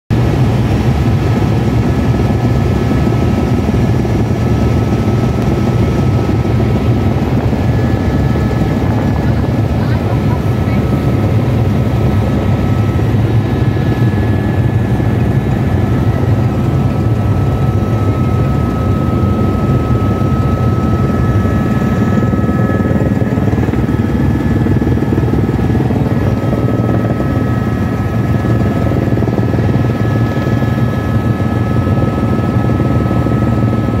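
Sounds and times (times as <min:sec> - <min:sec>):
helicopter rotor and engine: 0:00.1 - 0:34.0.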